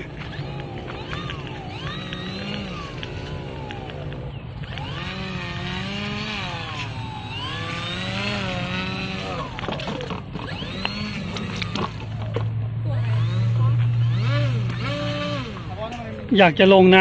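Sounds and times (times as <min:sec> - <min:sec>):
hull sliding on concrete: 0:00.0 - 0:12.6
electric propeller whining: 0:00.0 - 0:17.0.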